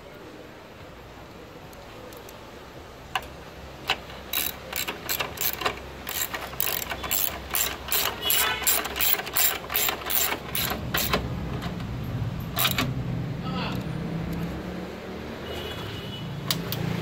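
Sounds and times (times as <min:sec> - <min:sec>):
socket ratchet clicking: 0:03.2 - 0:12.9.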